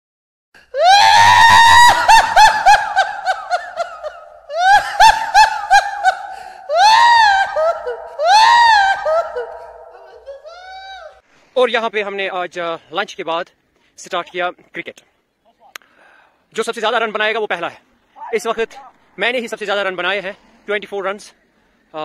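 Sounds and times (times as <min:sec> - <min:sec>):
high-pitched squealing laughter: 0:00.8 - 0:11.2.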